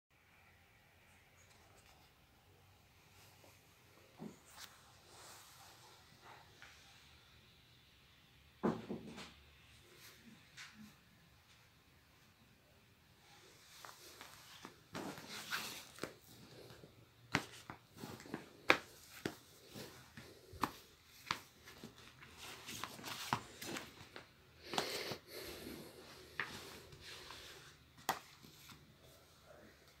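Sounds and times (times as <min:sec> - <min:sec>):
books handled on cloth: 0:13.7 - 0:24.4, 0:26.0 - 0:29.2.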